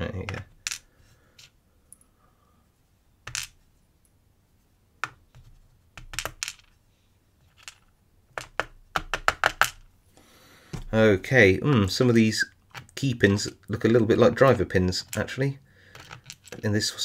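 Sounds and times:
lock pins clicking on plastic tray: 7.5 - 9.9, 15.9 - 16.6.

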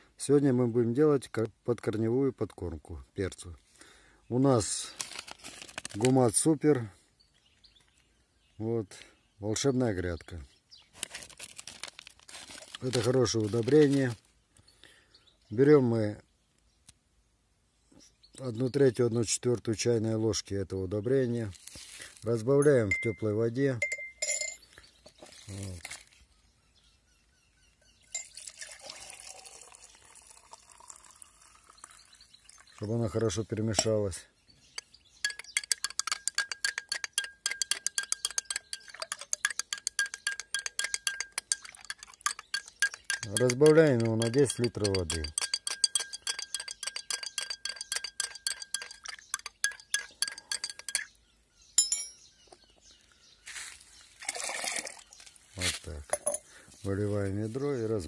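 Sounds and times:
loud ringing clink: 23.8 - 24.6, 51.8 - 52.3
water pouring into jar: 28.1 - 33.4, 35.3 - 51.1, 54.2 - 55.3.

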